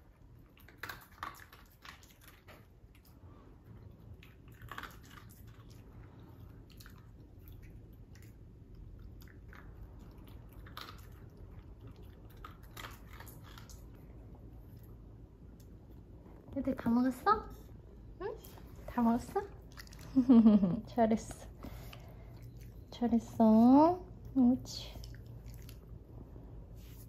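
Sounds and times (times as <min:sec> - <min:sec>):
dog crunching dry kibble: 0:04.2 - 0:08.4, 0:09.0 - 0:14.2.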